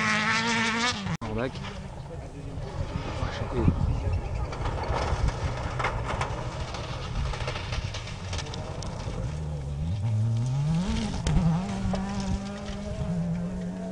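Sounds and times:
car engine revving hard: 9.8s - 13.9s.

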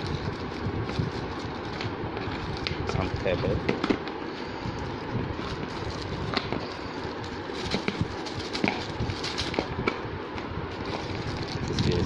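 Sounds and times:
steady background hiss: 0.0s - 12.0s
plastic bag clicks and rustles: 4.8s - 9.7s.

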